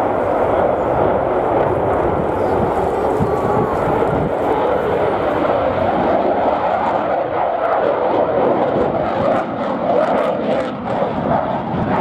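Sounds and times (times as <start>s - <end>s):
fighter jet engine roar: 0.0s - 12.0s.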